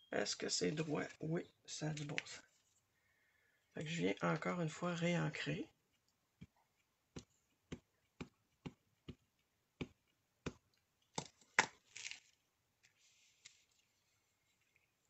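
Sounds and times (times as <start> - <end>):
paper sliding rustle: 11.9 - 14.2.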